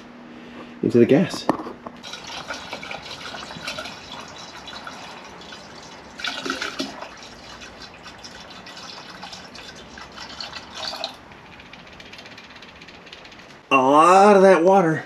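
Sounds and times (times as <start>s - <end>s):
water pouring into jug: 2.0s - 11.2s.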